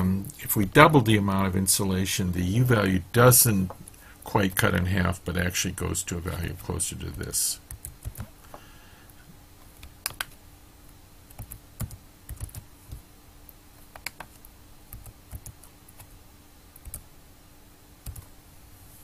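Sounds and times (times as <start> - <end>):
faint steady hum: 0.0 - 19.0
computer keyboard typing: 7.7 - 8.3, 9.8 - 10.4, 11.3 - 13.0, 13.9 - 16.2, 16.8 - 17.0, 18.0 - 18.3.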